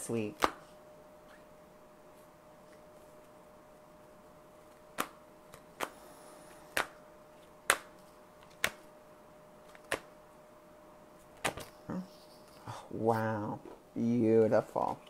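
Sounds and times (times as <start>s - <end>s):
cards slapping while shuffled: 0.3s - 0.7s, 4.7s - 8.9s, 9.6s - 10.1s, 11.3s - 11.8s.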